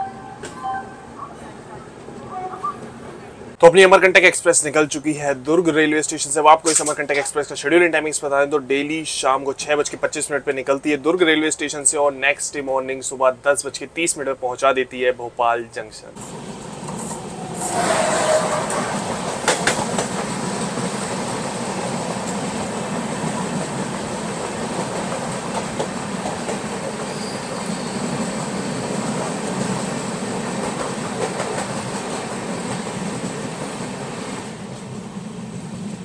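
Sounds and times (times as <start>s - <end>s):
passing train rushing and rattling: 16.2s - 36.0s.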